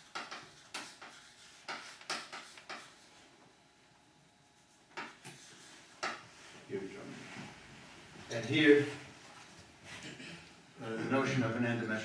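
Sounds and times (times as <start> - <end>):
chalk scratching on blackboard: 0.0 - 3.2, 4.6 - 6.2.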